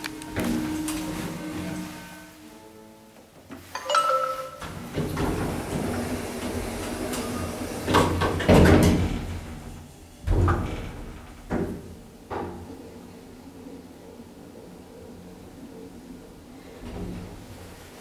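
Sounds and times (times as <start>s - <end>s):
elevator door sliding shut: 3.9s - 11.9s.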